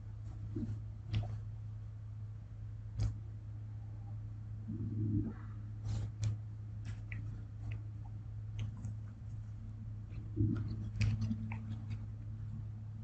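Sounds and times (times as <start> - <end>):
steady low hum: 0.0 - 13.0
faint clicks and taps: 0.2 - 1.5, 5.9 - 12.7.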